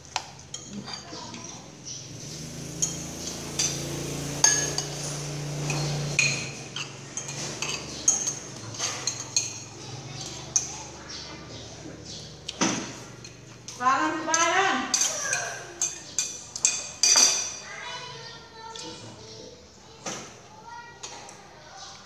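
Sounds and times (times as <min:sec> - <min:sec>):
spoons clinking on ceramic bowls: 0:00.0 - 0:11.0, 0:12.5 - 0:17.6.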